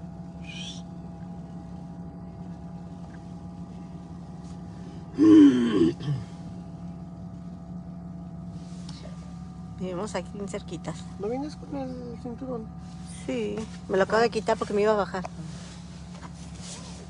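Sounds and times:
car idling inside cabin: 0:00.0 - 0:17.0
person groaning: 0:05.2 - 0:06.3.

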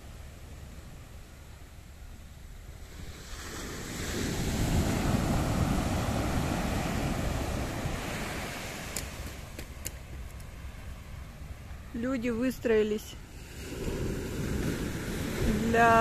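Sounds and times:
wind on microphone: 0:02.6 - 0:10.1, 0:13.4 - 0:16.0
wave breaking on sand: 0:02.9 - 0:09.9.

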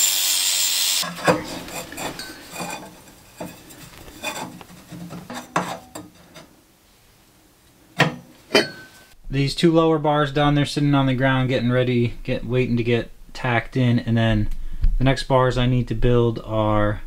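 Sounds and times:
angle grinder grinding steel: 0:00.0 - 0:05.9
steel tube clanks and scrapes: 0:01.0 - 0:06.6, 0:08.1 - 0:09.0.

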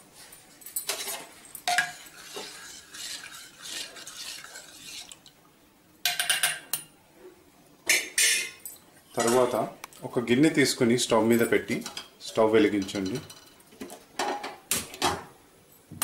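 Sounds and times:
spoon scraping steel bowl: 0:00.9 - 0:05.2.

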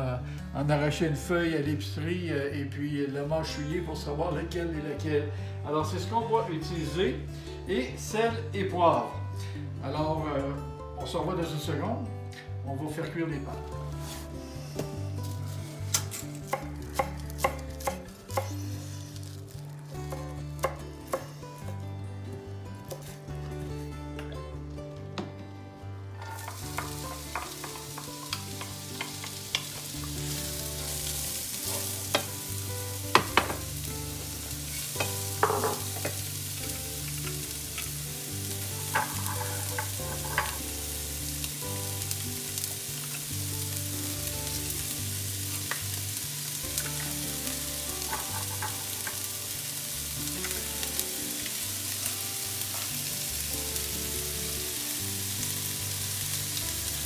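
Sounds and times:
onion sizzling in oil: 0:13.8 - 0:21.9, 0:26.2 - 0:57.0
utensils knocking on pan: 0:26.2 - 0:29.8, 0:31.7 - 0:32.4, 0:33.1 - 0:33.7, 0:35.0 - 0:36.2, 0:38.9 - 0:40.6, 0:48.0 - 0:49.2.

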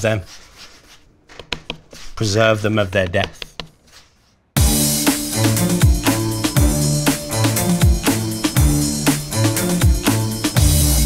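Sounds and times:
sustained bass notes: 0:04.6 - 0:11.0.

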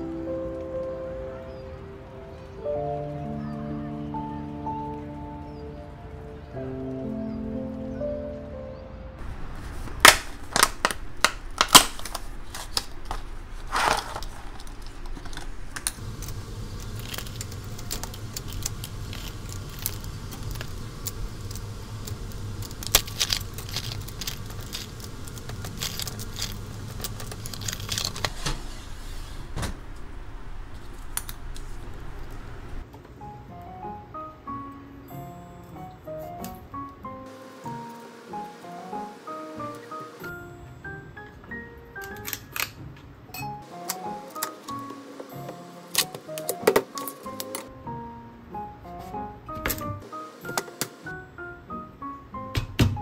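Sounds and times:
low steady hum: 0:04.5 - 0:32.9
rustling: 0:09.3 - 0:32.8
small hard objects clicking and rattling: 0:10.3 - 0:28.4, 0:43.8 - 0:47.7.

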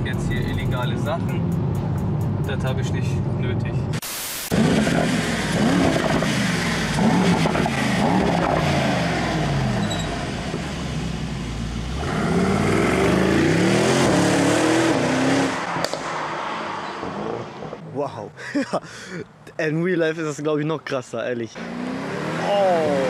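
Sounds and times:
car engine accelerating: 0:04.5 - 0:17.8.

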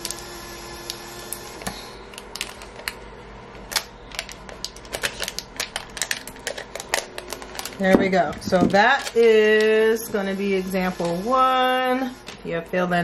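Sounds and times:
plastic tape clicking and crackling: 0:02.1 - 0:03.0, 0:03.7 - 0:07.8.

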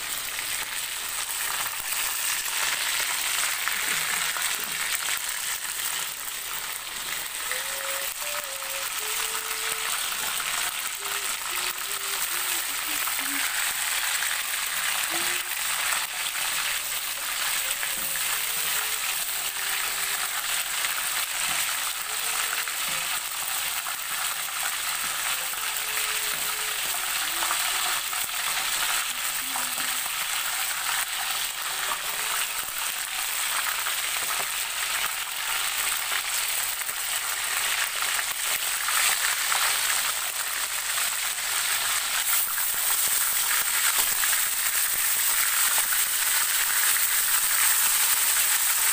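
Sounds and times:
chicken deep-frying in oil: 0:00.0 - 0:48.9.

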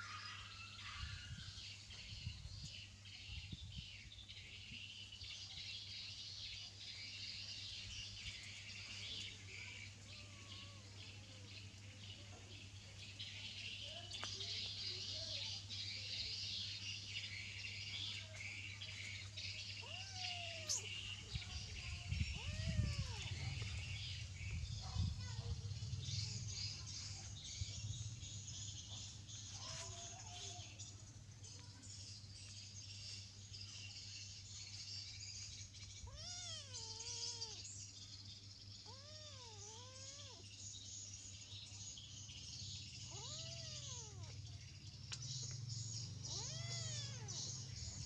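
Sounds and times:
birds and insects chirring: 0:00.0 - 0:48.0
kitten meowing: 0:10.1 - 0:10.9, 0:19.8 - 0:20.9, 0:22.3 - 0:23.6, 0:36.1 - 0:37.6, 0:38.8 - 0:40.4, 0:43.1 - 0:44.4, 0:46.3 - 0:47.4.

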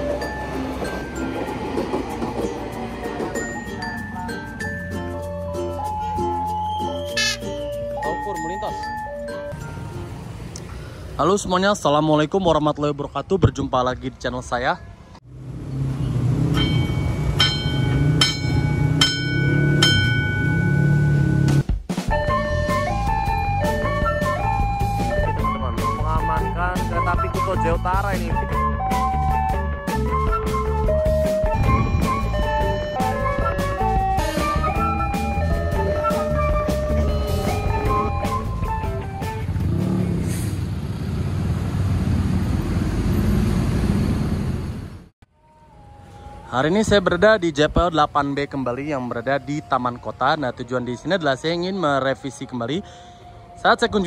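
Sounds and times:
road traffic rumble: 0:00.0 - 0:54.0
level crossing bell ringing: 0:03.4 - 0:10.0, 0:16.5 - 0:21.3, 0:31.6 - 0:33.4, 0:34.9 - 0:38.4
large vehicle passing: 0:15.2 - 0:21.6, 0:33.2 - 0:45.1.

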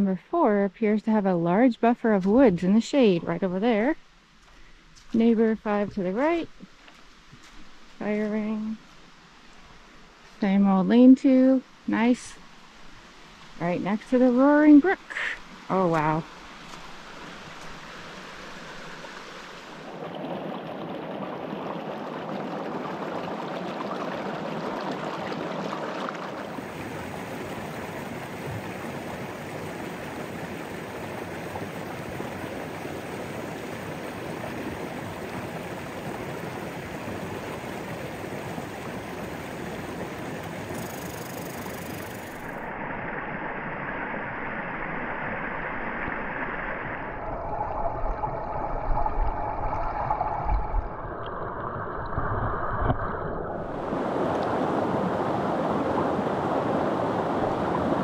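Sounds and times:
brook water rushing: 0:11.7 - 0:43.0, 0:43.8 - 0:58.0.

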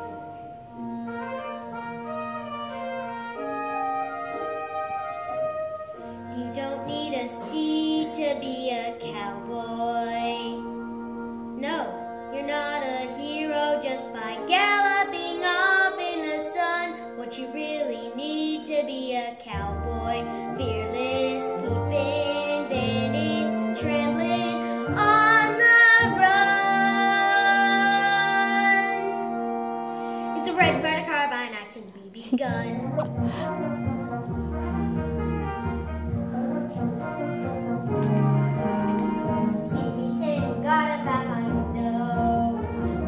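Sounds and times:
instrumental accompaniment: 0:00.0 - 0:43.0
boy singing: 0:06.3 - 0:10.7, 0:11.6 - 0:29.2, 0:30.4 - 0:33.0, 0:39.6 - 0:43.0.

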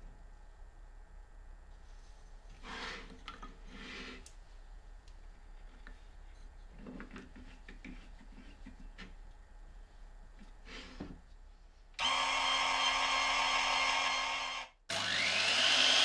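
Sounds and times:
wood sliding scrapes: 0:02.6 - 0:04.3.

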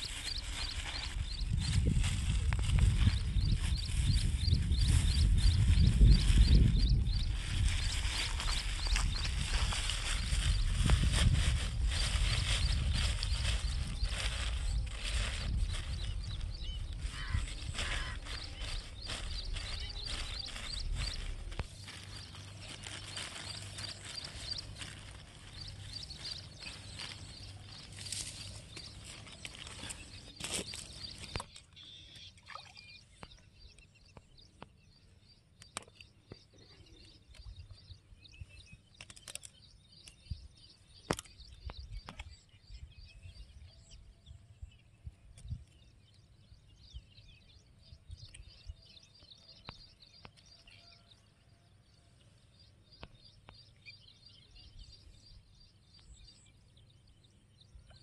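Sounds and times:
plastic bag rustling: 0:00.0 - 0:04.4, 0:07.3 - 0:31.3
faint birds chirping: 0:00.0 - 0:58.0.

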